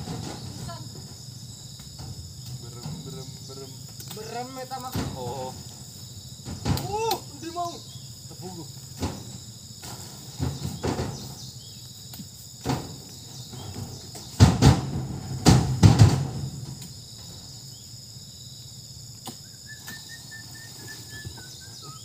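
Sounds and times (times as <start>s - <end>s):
fruit bunches thudding into truck bed: 0.0s - 7.7s, 8.8s - 17.5s
high insect drone: 0.0s - 22.0s.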